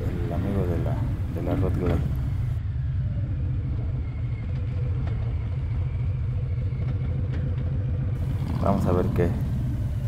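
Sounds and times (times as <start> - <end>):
motorcycle engine rumbling: 0.0 - 2.6, 8.2 - 10.0.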